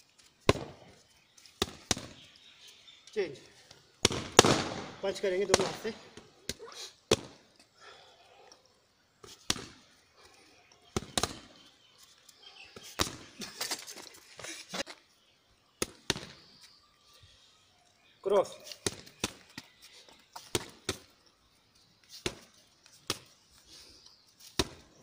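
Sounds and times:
boxing gloves hitting punching pads: 4.0s - 7.4s, 9.3s - 9.8s, 10.9s - 11.5s.

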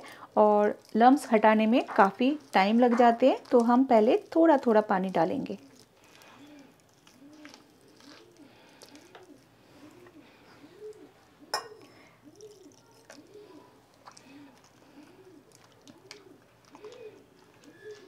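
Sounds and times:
hand mixing thick batter: 0.0s - 18.0s
pigeon cooing: 5.6s - 18.0s.

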